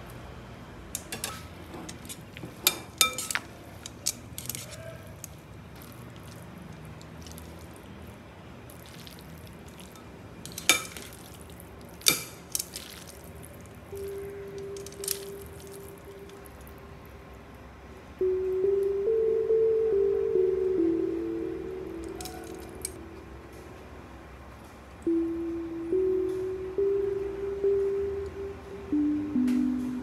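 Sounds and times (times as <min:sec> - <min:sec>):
low steady hum: 0:00.0 - 0:30.0
tongs clinking on glass bowl: 0:01.0 - 0:05.4, 0:09.9 - 0:11.2, 0:12.0 - 0:12.7, 0:14.0 - 0:16.4, 0:22.0 - 0:23.0.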